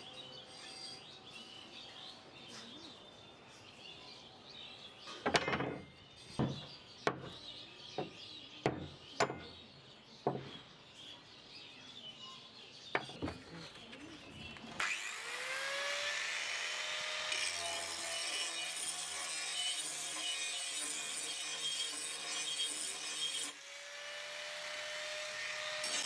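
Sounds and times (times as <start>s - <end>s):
angle grinder grinding metal: 14.8s - 26.0s.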